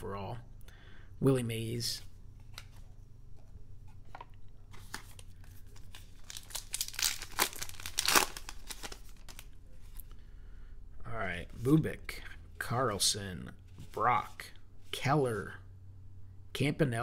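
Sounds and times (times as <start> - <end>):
wrapper tearing and crinkling: 5.8 - 9.5.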